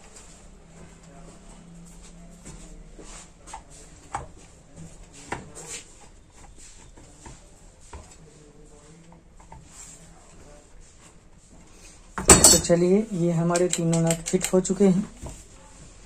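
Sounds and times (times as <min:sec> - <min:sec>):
tool handling on a bench: 0:12.2 - 0:15.4
nut driver clicking and scraping: 0:13.4 - 0:14.8.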